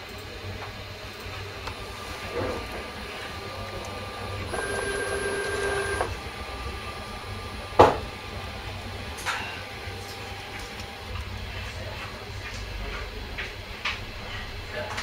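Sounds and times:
cnc mill motor hum: 0:00.7 - 0:12.6
multi-tone drive whine: 0:00.8 - 0:12.5.

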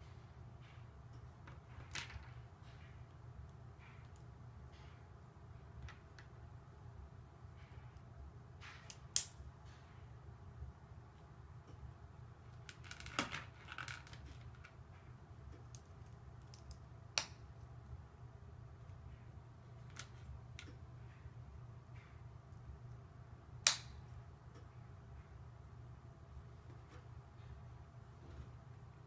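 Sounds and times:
low steady hum: 0:00.0 - 0:29.0
plastic pieces clicking and rattling: 0:12.6 - 0:14.8.

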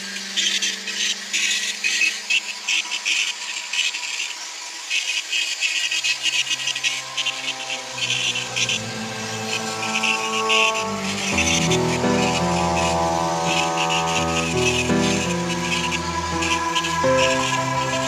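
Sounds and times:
rotary tool grinding into wood: 0:00.0 - 0:18.0
background music: 0:06.6 - 0:18.0.

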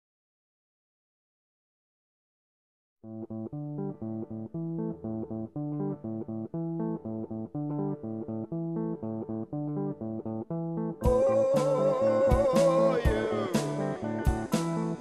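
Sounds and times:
background music with bass line: 0:03.4 - 0:15.0.

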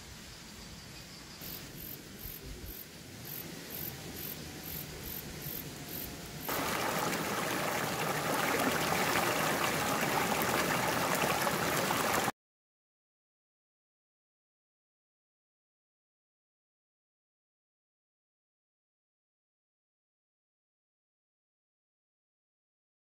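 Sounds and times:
stream water rushing: 0:06.4 - 0:12.3.

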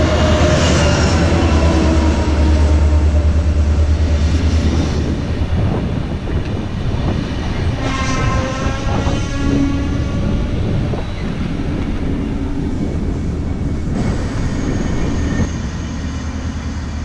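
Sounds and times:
diesel locomotive engine drone: 0:00.0 - 0:17.0
train wheels rolling: 0:00.0 - 0:17.0.

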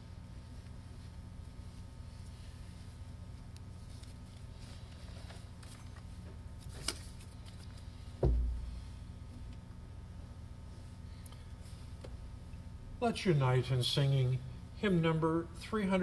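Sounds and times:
sound system hum: 0:07.8 - 0:16.0
low thump at lectern: 0:08.2 - 0:08.7.

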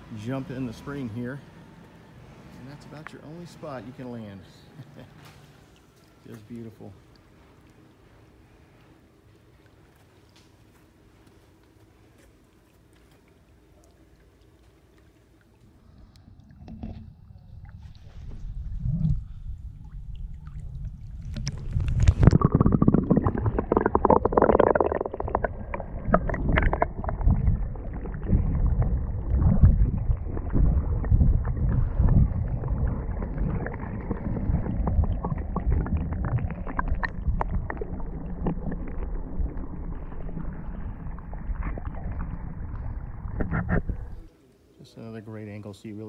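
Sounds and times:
muffled underwater churning: 0:11.9 - 0:44.4.

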